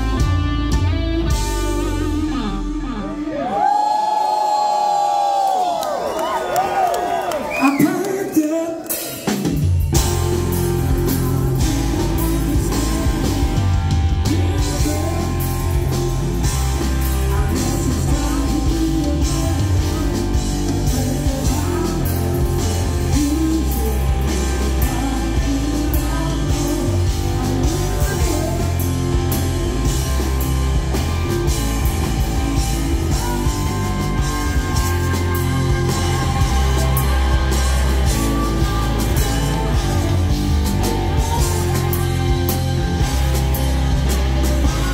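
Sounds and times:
electric guitar: 0:00.0 - 0:04.6, 0:08.9 - 0:44.9
drums: 0:00.0 - 0:44.9
male singer: 0:10.1 - 0:29.9, 0:31.2 - 0:44.9.

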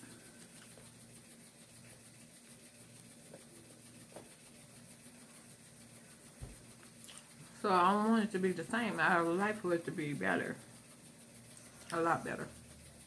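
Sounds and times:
low room hiss: 0:00.0 - 0:13.0
faint chewing: 0:06.8 - 0:07.5
soft mouth clicks: 0:07.0 - 0:07.3.

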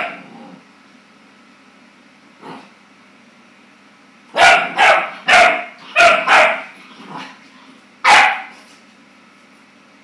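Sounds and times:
puppy barking: 0:04.3 - 0:06.8, 0:08.0 - 0:08.6.

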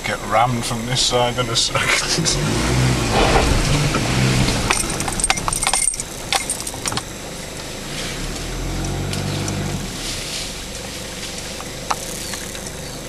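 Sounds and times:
vehicle engine hum: 0:00.0 - 0:13.0
rattling and jingling clinks: 0:04.7 - 0:07.1.

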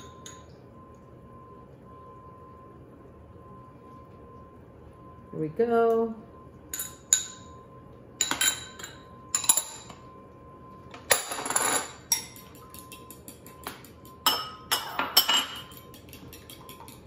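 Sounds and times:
fork clinking against ceramic bowl: 0:11.5 - 0:17.0
fork scraping bowl: 0:15.6 - 0:17.0.

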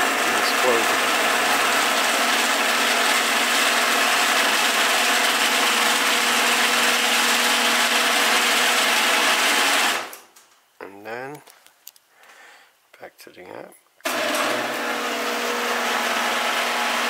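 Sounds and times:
garage door opener humming: 0:00.0 - 0:10.2, 0:14.0 - 0:17.0.

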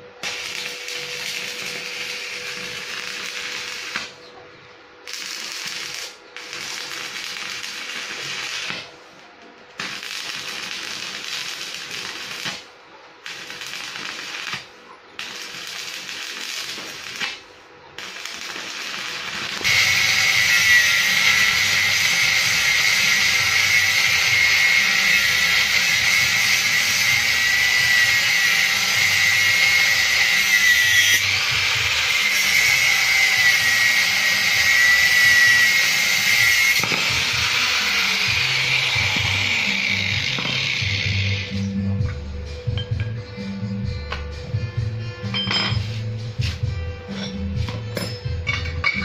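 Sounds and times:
arc welding hissing and crackling: 0:00.0 - 0:04.3, 0:05.0 - 0:41.9
angle grinder cutting steel rod: 0:18.1 - 0:41.8.

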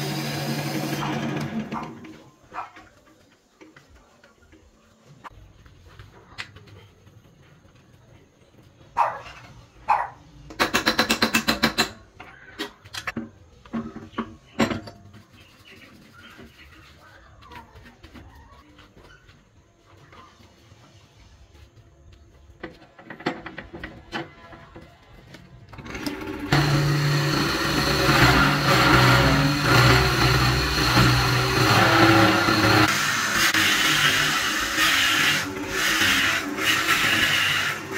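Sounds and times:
wood lathe motor hum: 0:00.0 - 0:01.8, 0:25.9 - 0:37.9.

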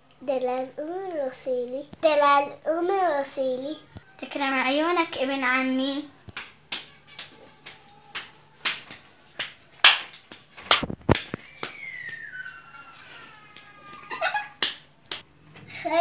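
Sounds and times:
whistle-like tone sliding down: 0:11.4 - 0:13.3.

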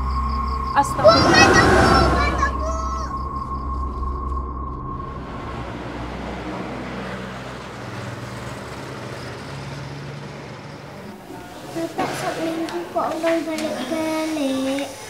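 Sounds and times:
street traffic noise: 0:00.0 - 0:03.1, 0:04.2 - 0:15.0
steady high tone: 0:00.0 - 0:07.0
motor scooter passing: 0:00.8 - 0:03.1, 0:05.2 - 0:14.6.

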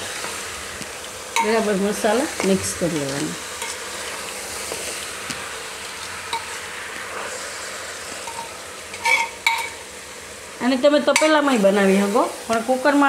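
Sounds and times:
curry sizzling in a pot: 0:00.0 - 0:13.0
spoon stirring and scraping: 0:02.4 - 0:05.1, 0:08.2 - 0:09.8
spoon clinking against pot: 0:08.3 - 0:09.8.

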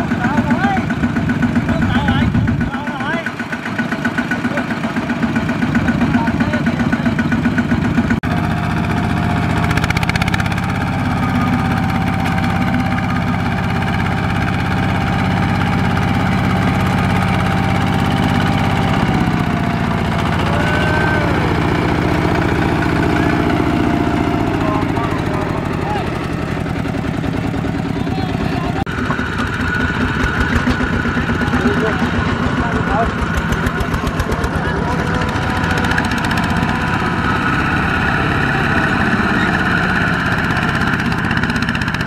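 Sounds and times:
diesel tractor engine running: 0:00.0 - 0:42.0.

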